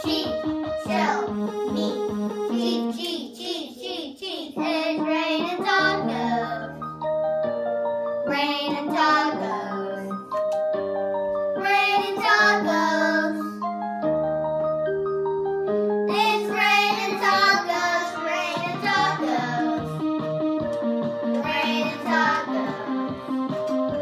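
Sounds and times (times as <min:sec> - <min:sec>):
backing music with keyboard chords: 0:00.0 - 0:03.7, 0:04.5 - 0:24.0
children singing: 0:16.1 - 0:20.0, 0:21.4 - 0:23.1.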